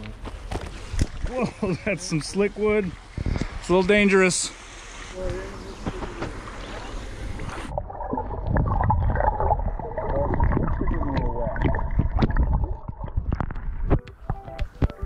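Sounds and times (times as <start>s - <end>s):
outdoor hiss of wind or water: 0.2s - 7.8s
muffled water gurgling and sloshing: 0.5s - 15.0s.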